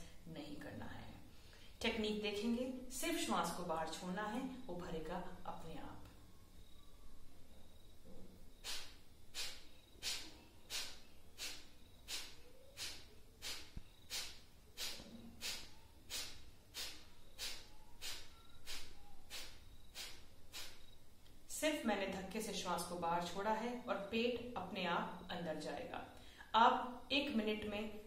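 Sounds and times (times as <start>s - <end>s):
woman's forceful nasal exhalations: 8.6s - 20.9s.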